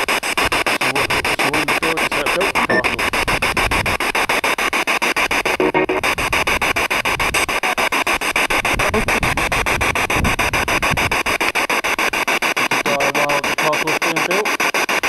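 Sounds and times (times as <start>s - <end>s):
pulsing radio static hiss: 0.0s - 15.0s
brief radio tone: 2.5s - 3.1s, 5.4s - 6.1s.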